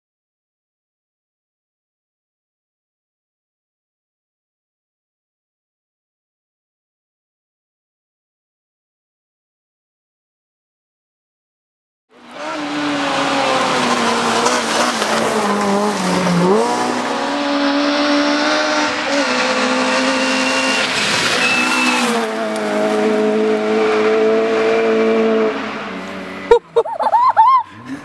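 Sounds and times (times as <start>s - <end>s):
rally car engines revving: 12.1s - 28.0s.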